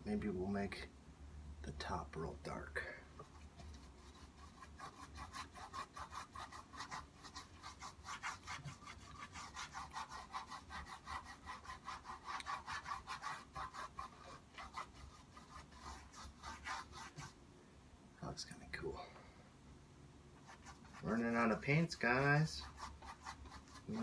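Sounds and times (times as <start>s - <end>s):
paintbrush scratching on canvas: 3.2s - 17.4s, 20.4s - 24.0s.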